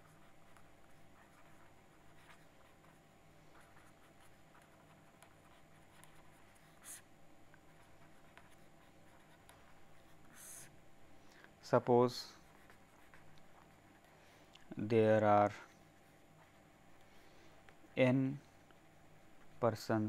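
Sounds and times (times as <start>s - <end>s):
felt-tip marker scratching paper: 0.0s - 10.7s, 12.4s - 14.1s
faint low hum: 0.0s - 20.0s.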